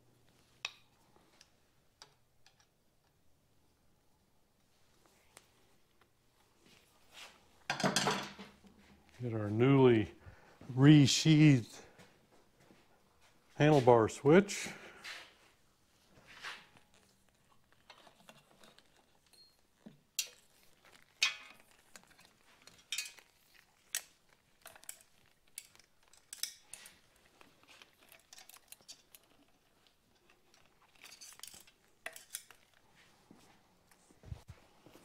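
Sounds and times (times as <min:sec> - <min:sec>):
light clicks and metallic clinks: 0:17.8 - 0:32.9.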